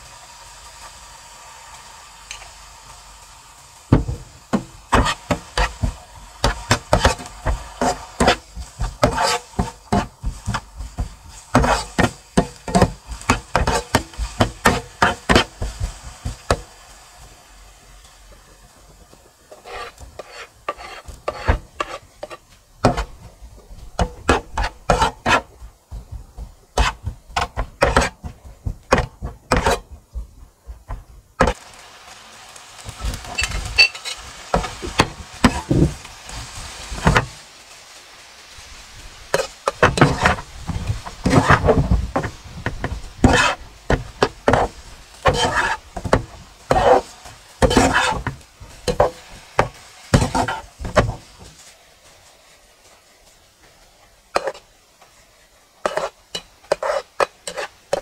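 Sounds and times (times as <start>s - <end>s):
utensil knocking and scraping: 3.9s - 16.7s, 19.5s - 31.6s, 37.0s - 37.3s, 39.3s - 51.6s, 55.8s - 58.0s.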